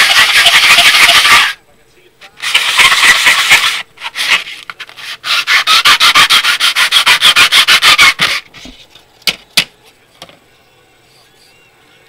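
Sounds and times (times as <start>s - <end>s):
plastic sanding on sandpaper: 0.0s - 1.6s, 2.4s - 8.9s.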